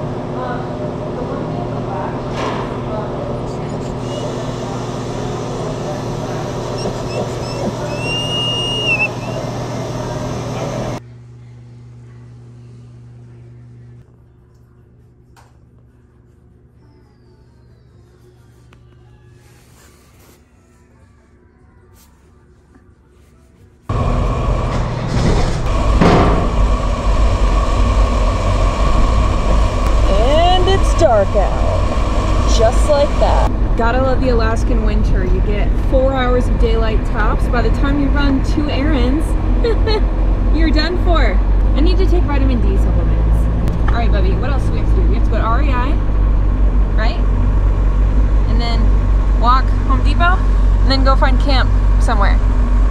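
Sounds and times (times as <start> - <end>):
steady low hum: 0.0 - 20.2, 20.9 - 52.9
vehicle running heard from cab: 3.6 - 11.0, 23.9 - 52.9
high squeal: 6.6 - 10.6
loud clunk: 24.6 - 26.8.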